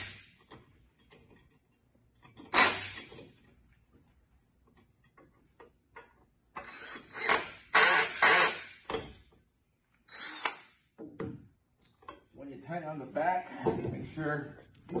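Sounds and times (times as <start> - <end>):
cordless drill driving bolts: 2.4 - 3.2, 6.6 - 9.0, 10.1 - 10.7.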